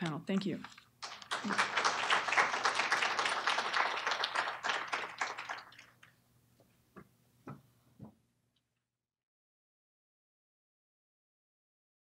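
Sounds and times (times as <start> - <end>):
audience applause: 1.0 - 6.1.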